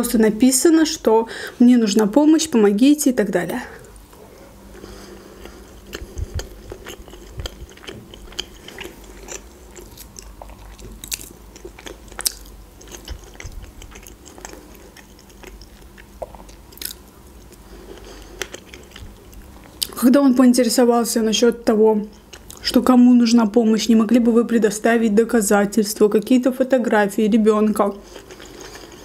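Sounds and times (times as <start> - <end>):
chewing soft food: 3.8 - 20.0, 22.1 - 22.7, 27.9 - 29.0.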